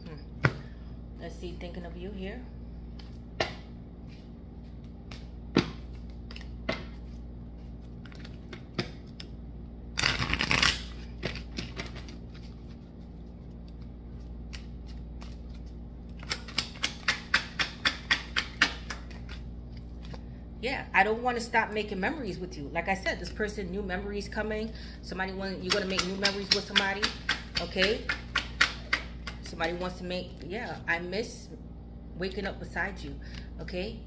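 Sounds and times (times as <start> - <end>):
cards being shuffled: 10.0 - 17.0.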